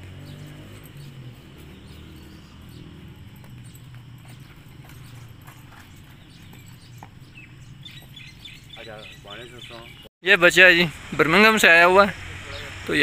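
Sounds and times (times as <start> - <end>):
horse hooves cantering on dirt: 0.0 - 9.9.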